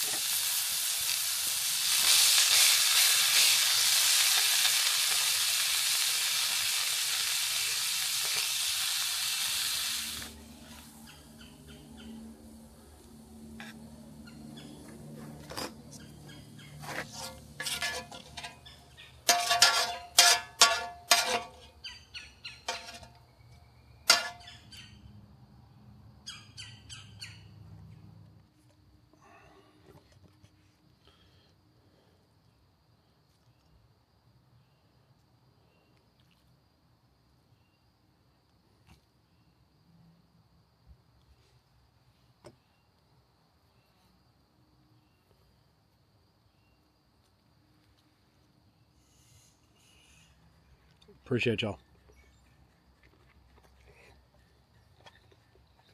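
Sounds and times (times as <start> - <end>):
metal tongs scraping steel: 16.8 - 21.8, 22.6 - 23.2, 24.1 - 24.5.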